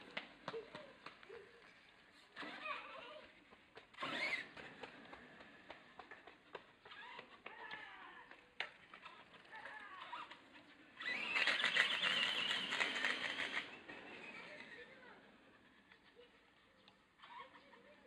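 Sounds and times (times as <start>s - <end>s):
rc truck driving on asphalt: 0.0s - 18.0s
faint chirps and clicks: 15.9s - 17.0s.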